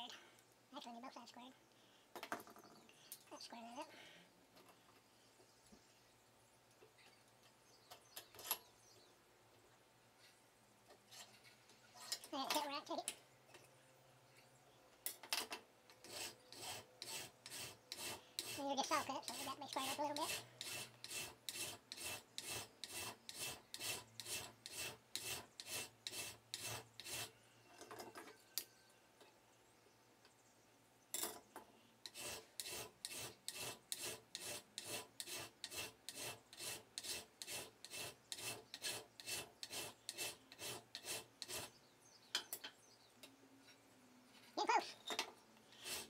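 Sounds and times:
hand file rasping on metal: 0:16.0 - 0:27.4, 0:32.0 - 0:41.8, 0:45.7 - 0:46.0.

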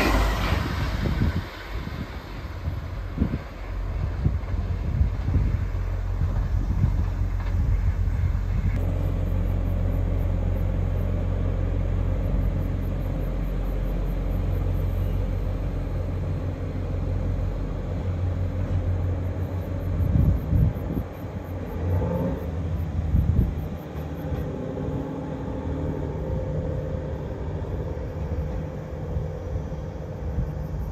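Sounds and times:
diesel generator idling: 0:00.0 - 0:21.8.

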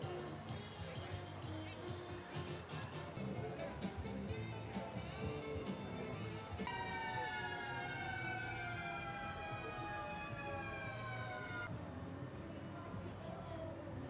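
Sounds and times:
siren wailing: 0:06.7 - 0:11.7.

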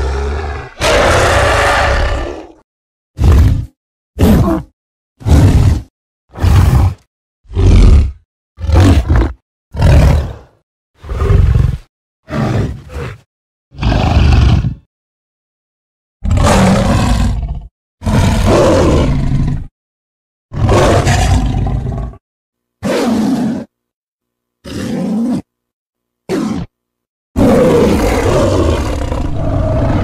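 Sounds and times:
giant ape grunts and barks: 0:00.0 - 0:02.6, 0:03.2 - 0:14.7, 0:26.3 - 0:26.7, 0:27.4 - 0:30.0
giant ape roaring: 0:00.0 - 0:02.6, 0:16.2 - 0:19.5, 0:20.5 - 0:22.2, 0:27.4 - 0:30.0.

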